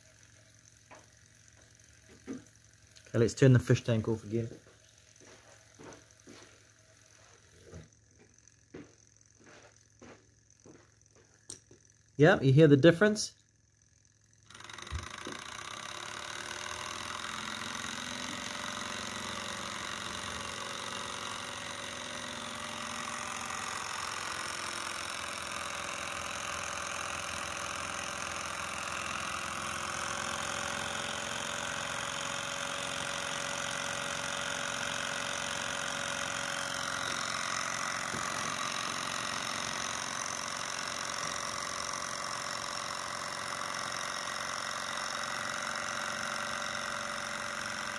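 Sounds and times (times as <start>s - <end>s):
model engine mechanical clatter: 13.8s - 47.9s.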